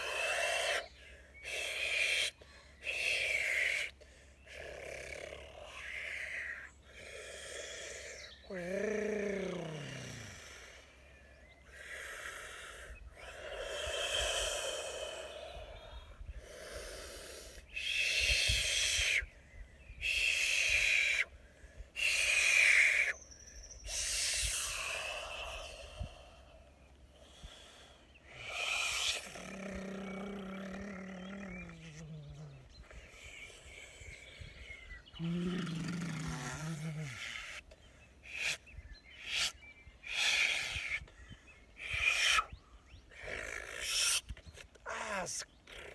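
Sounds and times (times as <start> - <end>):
man blowing and hissing: 16.4 - 19.3, 20.0 - 21.3, 22.0 - 23.1, 23.8 - 26.2, 28.3 - 30.2, 43.2 - 44.4.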